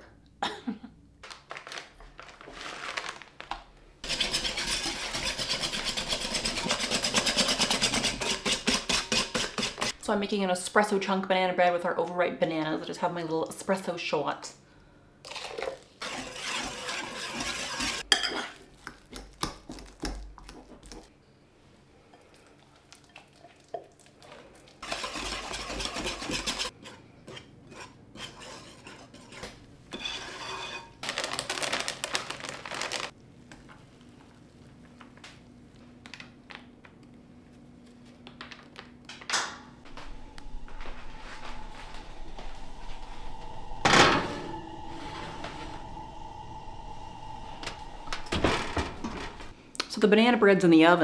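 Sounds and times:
utensil stirring in mixing bowl: 4.0s - 10.0s, 15.3s - 18.4s, 22.2s - 30.8s.

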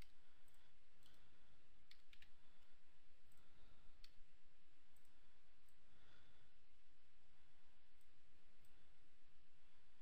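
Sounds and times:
mouse and keyboard clicks: 0.0s - 0.2s, 1.0s - 2.7s
faint steady hiss: 0.0s - 10.0s.

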